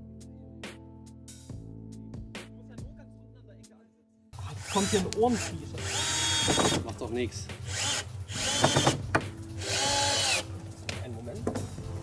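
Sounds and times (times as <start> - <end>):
background music with sharp beats: 0.6 - 3.0, 4.6 - 12.0.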